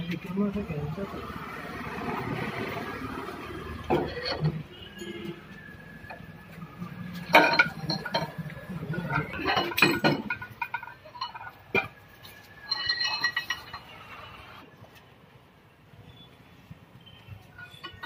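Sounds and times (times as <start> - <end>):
metal clinks and knocks: 3.7 - 14.1, 17.5 - 18.0
metal ringing clatter: 3.9 - 5.4, 7.1 - 14.1, 17.6 - 18.0.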